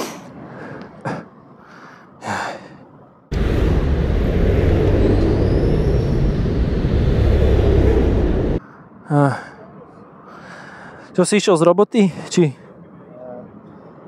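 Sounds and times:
motorcycle engine running: 0:03.3 - 0:08.6
wind noise on microphone: 0:03.3 - 0:08.6.

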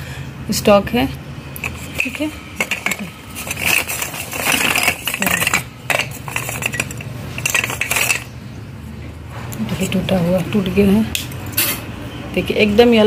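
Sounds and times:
clay saucers clinking: 0:01.6 - 0:08.4.

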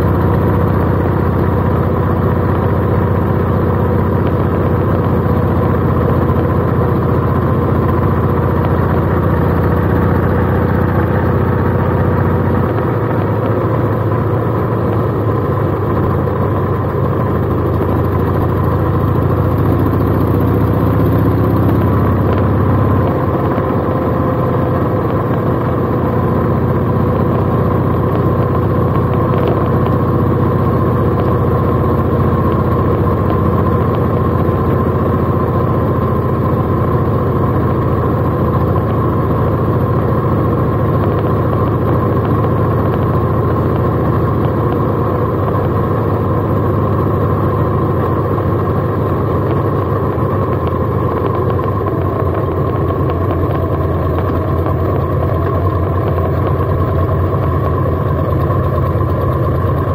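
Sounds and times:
motorcycle engine running: 0:00.0 - 0:59.9.

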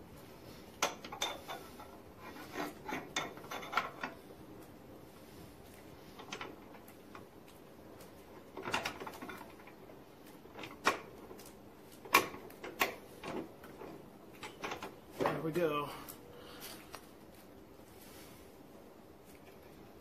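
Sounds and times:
metal parts clinking and scraping: 0:00.8 - 0:04.2.

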